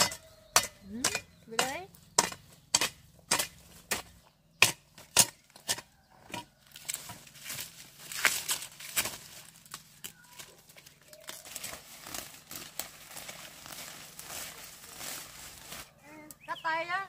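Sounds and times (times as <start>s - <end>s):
sharp knocks of tool: 0.0s - 6.5s
plants rustling and crackling: 6.4s - 17.0s.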